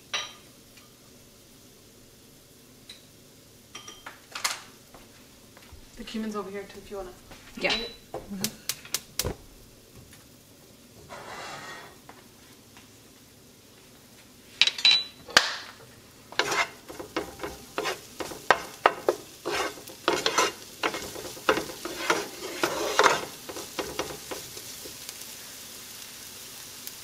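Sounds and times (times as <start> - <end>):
vegetables sizzling in oil: 0.0 - 27.0
wooden spoon scraping a pan: 11.0 - 12.1, 16.2 - 25.1.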